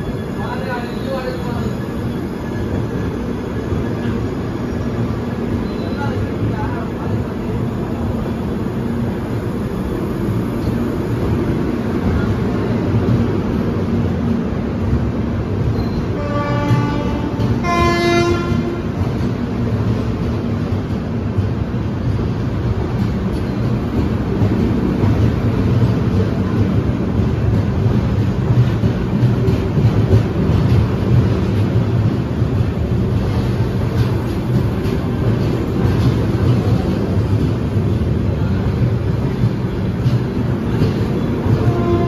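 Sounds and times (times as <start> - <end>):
train wheels rumbling on rails: 0.0 - 42.0
two-tone locomotive horn: 16.1 - 19.0, 41.5 - 42.0.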